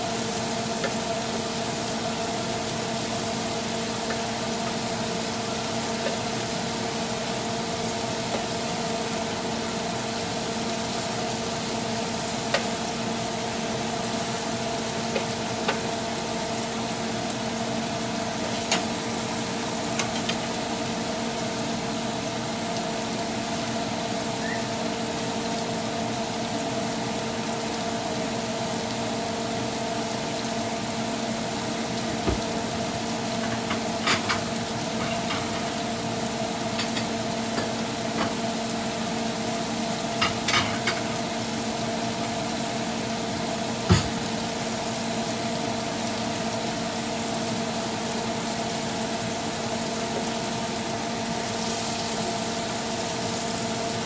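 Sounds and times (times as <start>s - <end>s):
shrimp sizzling in a pan: 0.0s - 54.0s.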